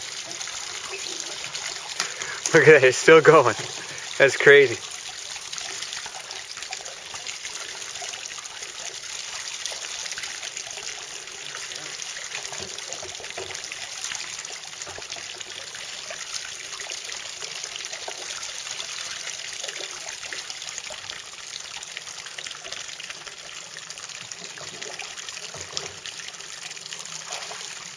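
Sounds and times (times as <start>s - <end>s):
water jet splashing onto lake: 0.0s - 21.4s.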